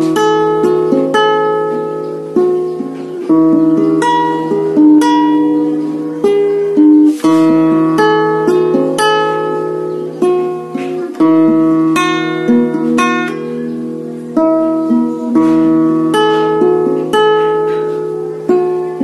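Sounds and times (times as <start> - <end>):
classical guitar chords ringing: 0.0 - 19.0.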